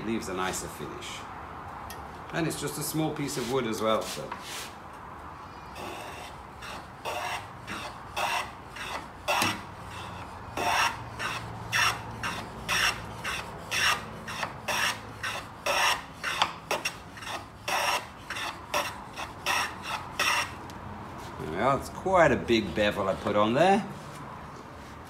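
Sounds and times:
hand plane shaving wood: 5.8 - 20.6.

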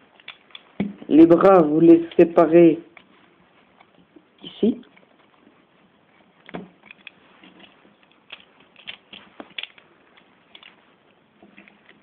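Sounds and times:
plastic toy parts clicking: 0.2 - 0.7, 6.4 - 10.8.

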